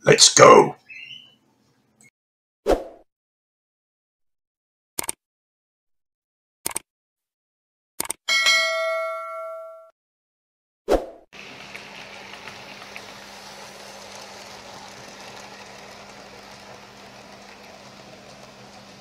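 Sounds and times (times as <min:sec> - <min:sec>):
model train rolling on track: 0:11.4 - 0:19.0.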